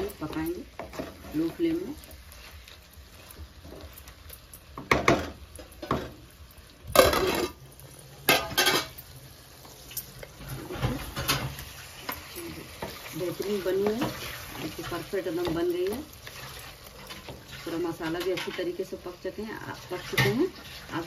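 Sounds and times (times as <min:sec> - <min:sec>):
faint sizzle: 0:00.0 - 0:21.0
wooden spatula scraping metal pan: 0:12.8 - 0:18.9, 0:19.7 - 0:21.0.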